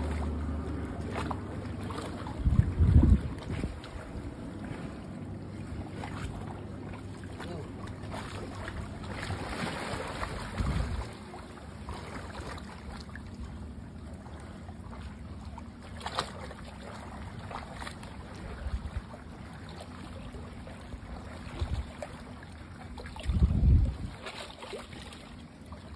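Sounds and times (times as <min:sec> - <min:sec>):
wind rumble on microphone: 0:00.0 - 0:05.2, 0:09.0 - 0:11.2, 0:18.2 - 0:19.2, 0:21.4 - 0:22.0, 0:23.0 - 0:24.4
water washing: 0:00.0 - 0:25.0
wind: 0:00.0 - 0:25.9
splash into water: 0:01.0 - 0:05.0, 0:05.8 - 0:13.2, 0:15.8 - 0:19.0, 0:21.1 - 0:25.3.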